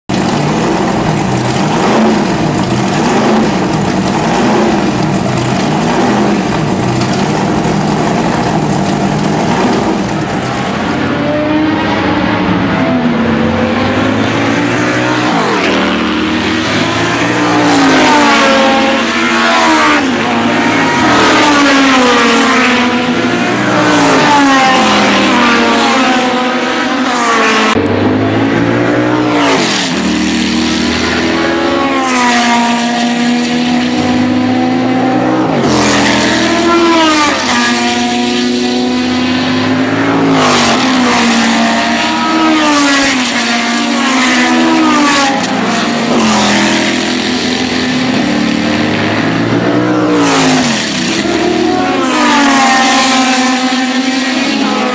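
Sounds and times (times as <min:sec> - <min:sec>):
racing car engines passing: 0:00.1 - 0:54.9.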